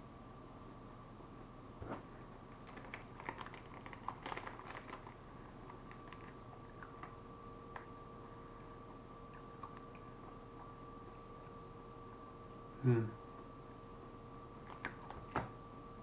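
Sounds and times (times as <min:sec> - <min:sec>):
faint steady hum: 0:00.0 - 0:16.0
crisp crackling clicks of eating: 0:02.5 - 0:08.0, 0:08.7 - 0:11.6, 0:14.6 - 0:15.5
wrapper handling: 0:02.6 - 0:07.2.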